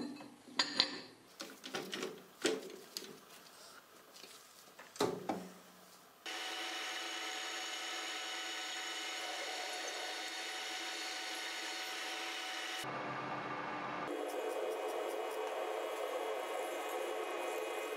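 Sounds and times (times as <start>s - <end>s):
lathe running with steady hum: 6.3s - 17.9s.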